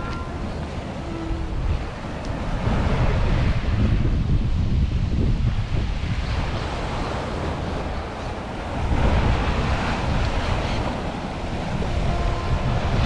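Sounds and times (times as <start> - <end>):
surf washing against rocks: 0.0 - 13.0
wind buffeting microphone: 0.0 - 13.0.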